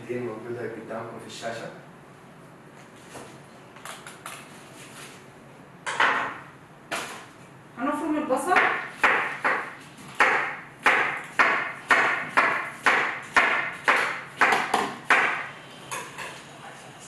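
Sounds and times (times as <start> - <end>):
knife chopping on cutting board: 8.6 - 15.5.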